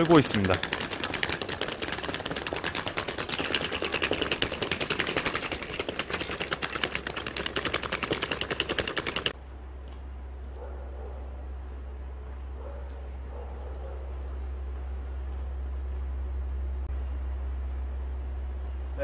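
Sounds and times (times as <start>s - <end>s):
suitcase wheels clattering: 0.0s - 9.4s
low steady hum: 9.3s - 19.0s.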